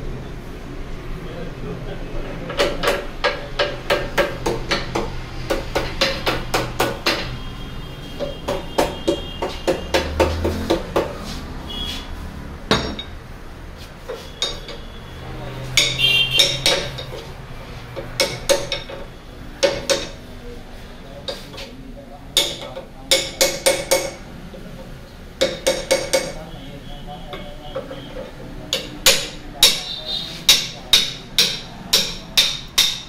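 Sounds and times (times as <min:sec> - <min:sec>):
hammer tapping metal rods: 0:02.5 - 0:07.4, 0:08.1 - 0:11.4, 0:12.7 - 0:13.2, 0:14.0 - 0:15.0, 0:15.6 - 0:17.3, 0:17.9 - 0:20.3, 0:21.2 - 0:21.7, 0:22.3 - 0:24.2, 0:25.4 - 0:26.5, 0:27.3 - 0:33.0
heavy knocks: 0:08.2 - 0:11.2.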